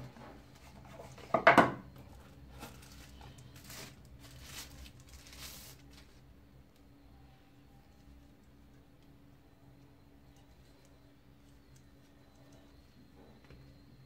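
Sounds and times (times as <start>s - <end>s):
plastic sleeve crinkling: 2.5s - 6.2s.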